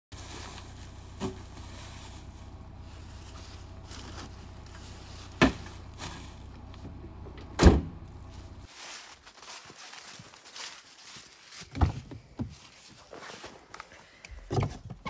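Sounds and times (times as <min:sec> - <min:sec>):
steady low hum: 0:00.2 - 0:08.7
vehicle doors banging shut: 0:05.4 - 0:05.7, 0:06.9 - 0:08.0.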